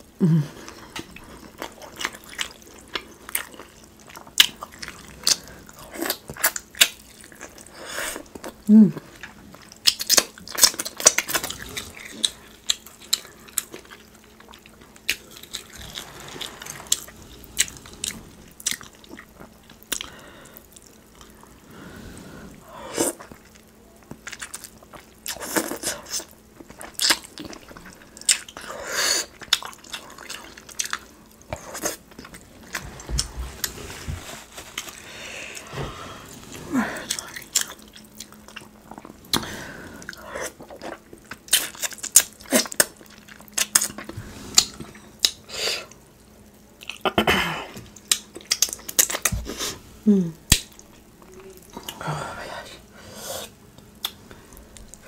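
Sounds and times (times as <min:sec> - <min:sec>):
wet chewing and lip smacks: 0:53.8 - 0:54.2.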